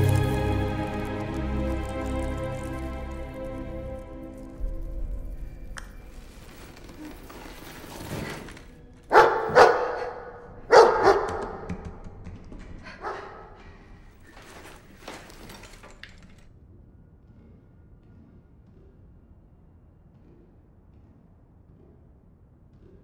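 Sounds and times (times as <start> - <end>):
dog barking: 9.1 - 11.8, 13.0 - 13.6.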